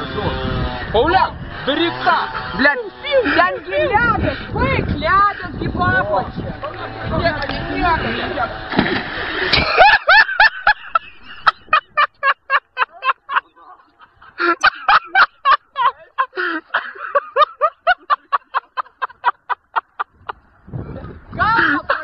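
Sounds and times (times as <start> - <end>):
person laughing in rapid bursts: 9.2 - 20.4, 21.4 - 22.0.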